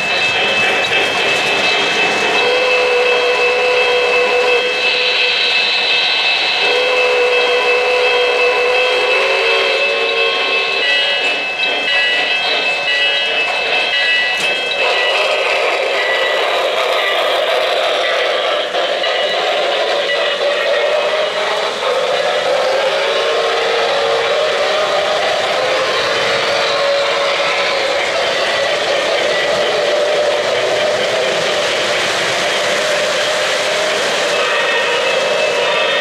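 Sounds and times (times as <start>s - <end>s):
long held tones: 0.0s - 16.4s
model train running on track: 0.0s - 36.0s.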